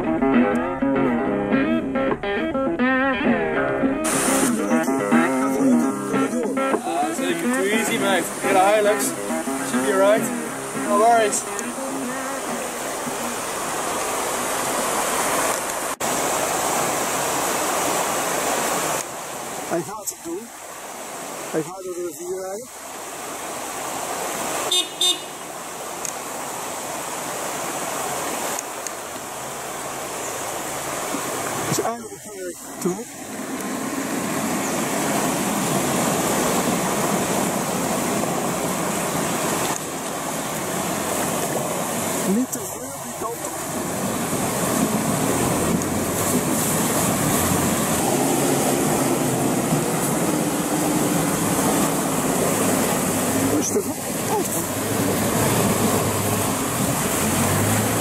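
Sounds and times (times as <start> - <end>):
vehicle engine humming: 0.0 - 18.8, 28.9 - 58.0
water flowing across creek: 0.0 - 58.0
vehicle horn toots: 24.6 - 25.5.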